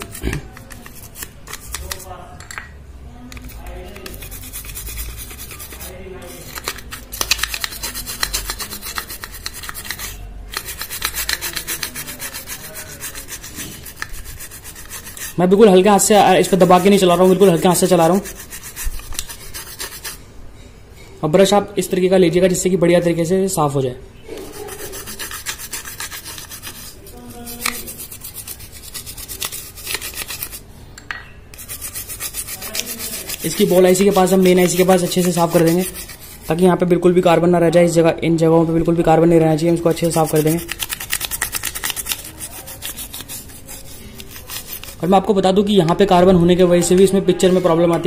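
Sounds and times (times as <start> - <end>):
bristle brush scrubbing: 0.0 - 2.1, 3.3 - 20.2, 24.4 - 30.6, 31.6 - 36.8, 39.4 - 45.3.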